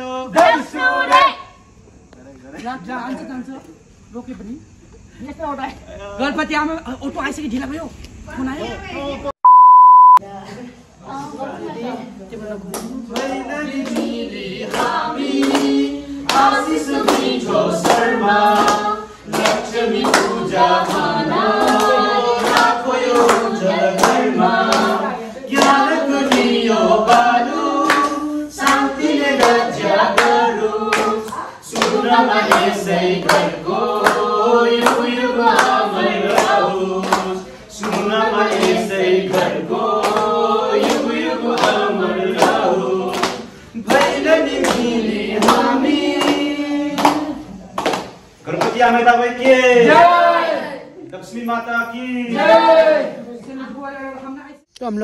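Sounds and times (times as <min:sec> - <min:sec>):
group singing a festival song: 0:00.0 - 0:02.0, 0:11.0 - 0:53.4
steady hand-clapping: 0:12.7 - 0:50.3.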